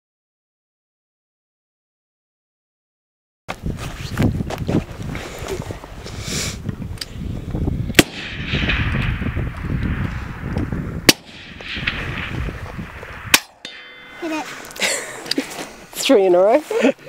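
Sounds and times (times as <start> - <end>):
rifle shots: 8.0 - 14.2.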